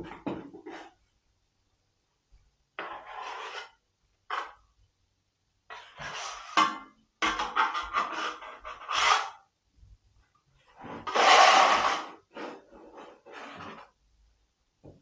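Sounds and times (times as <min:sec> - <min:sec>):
trowel scraping wet plaster: 0:02.8 - 0:04.6, 0:07.3 - 0:09.4, 0:10.8 - 0:13.9.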